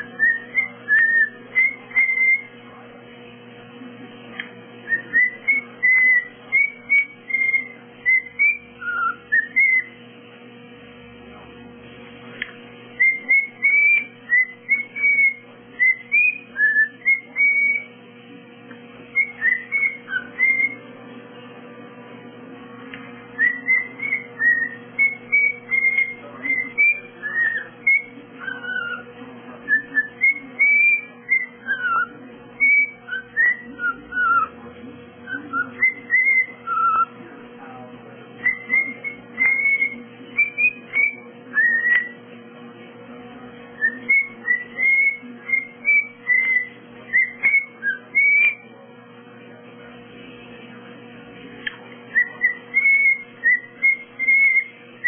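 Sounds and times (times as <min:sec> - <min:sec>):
cockatiel whistled chirps: 0:00.1 - 0:02.5, 0:04.9 - 0:10.0, 0:13.0 - 0:17.9, 0:19.1 - 0:20.8, 0:23.4 - 0:29.1, 0:29.7 - 0:34.5, 0:35.2 - 0:37.1, 0:38.4 - 0:42.2, 0:43.8 - 0:48.6, 0:52.1 - 0:54.7.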